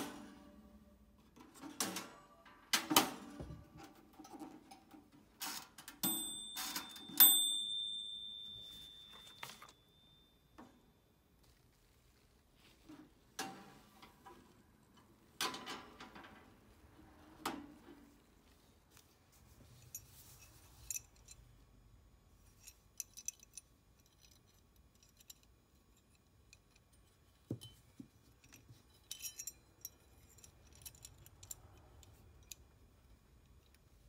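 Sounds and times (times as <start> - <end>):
faint clicks and metal clinks: 18.2 - 34.0.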